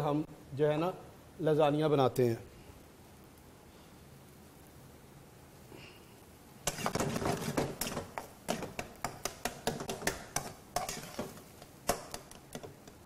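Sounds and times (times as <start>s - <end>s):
spatula scraping a frying pan: 6.6s - 13.0s.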